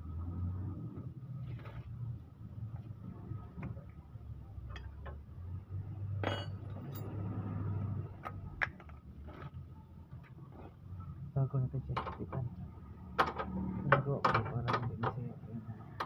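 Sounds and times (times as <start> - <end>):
tools clinking on metal: 6.2 - 7.1.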